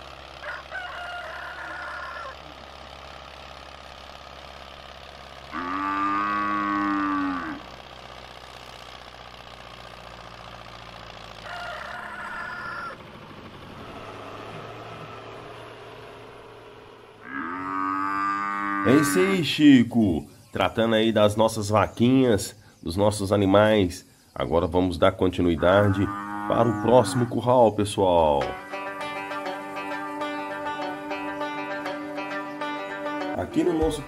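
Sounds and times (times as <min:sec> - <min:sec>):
cows mooing: 0:05.5 - 0:07.8, 0:13.9 - 0:19.5, 0:25.4 - 0:27.7.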